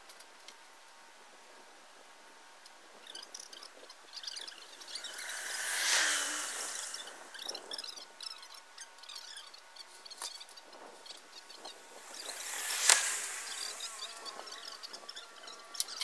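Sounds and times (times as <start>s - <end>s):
faint insect-like drone: 2.0s - 16.0s
small high chirps: 3.0s - 10.4s, 11.0s - 16.0s
rushing sound: 4.6s - 7.8s, 11.7s - 16.0s.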